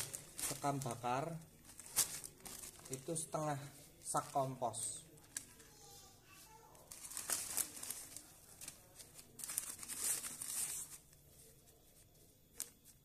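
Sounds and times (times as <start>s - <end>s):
plastic bag crinkling: 0.0s - 5.7s, 6.8s - 11.1s.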